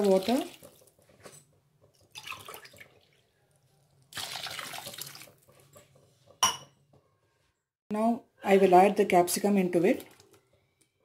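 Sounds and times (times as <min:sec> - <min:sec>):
water pouring into a pot: 0:00.0 - 0:01.0, 0:01.8 - 0:05.7.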